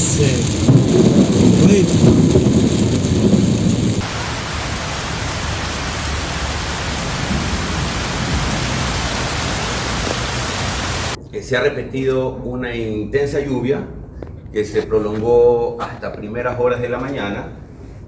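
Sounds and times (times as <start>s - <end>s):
heavy rain on flooded street: 0.0s - 11.2s
low rumble: 0.0s - 15.6s.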